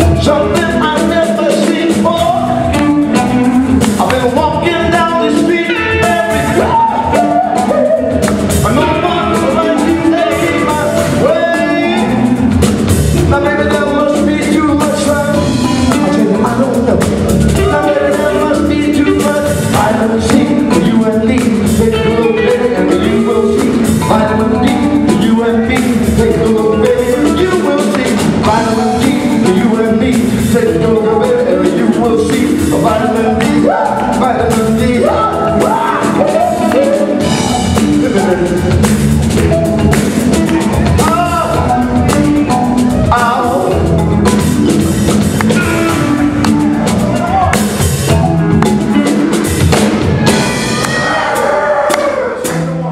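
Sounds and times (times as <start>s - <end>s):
man singing into a microphone: 0.0s - 2.9s, 3.9s - 12.5s, 13.2s - 38.9s, 43.0s - 44.0s
live band playing: 0.0s - 52.9s.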